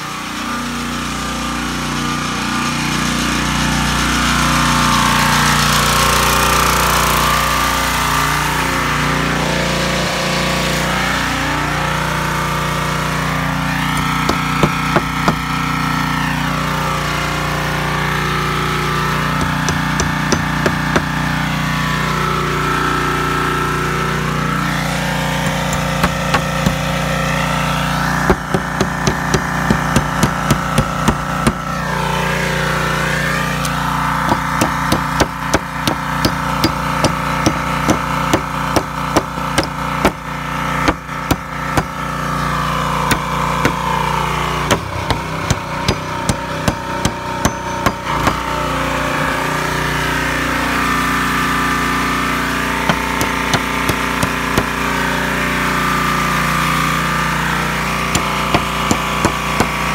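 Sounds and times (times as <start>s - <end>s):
hammer striking nails into wood: 14.0s - 15.5s, 19.4s - 21.2s, 25.4s - 26.9s, 28.2s - 31.6s, 33.6s - 42.0s, 43.1s - 43.9s, 44.6s - 48.5s, 52.9s - 54.8s, 58.2s - 59.9s.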